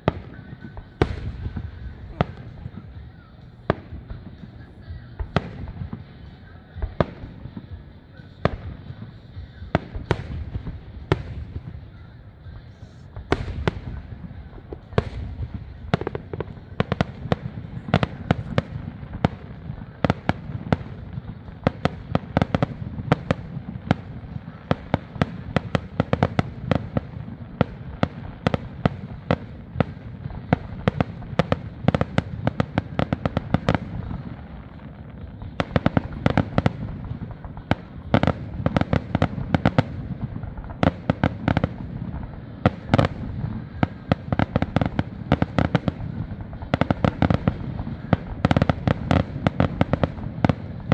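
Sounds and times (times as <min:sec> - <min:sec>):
fireworks bangs and crackling: 0:00.0 - 0:50.9
low rumble of explosions: 0:00.0 - 0:50.9.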